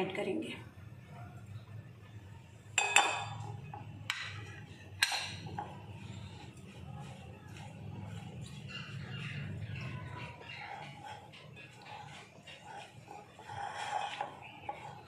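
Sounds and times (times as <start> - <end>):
utensils clinking on glass bowl: 2.8 - 5.8.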